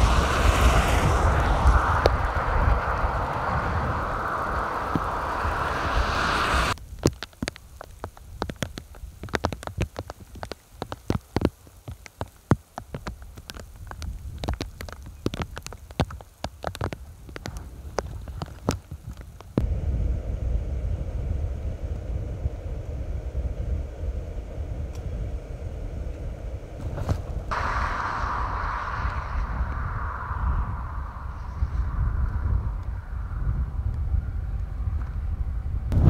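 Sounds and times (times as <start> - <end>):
raindrops tapping: 0.0 - 19.6
wind rumble: 0.0 - 36.0.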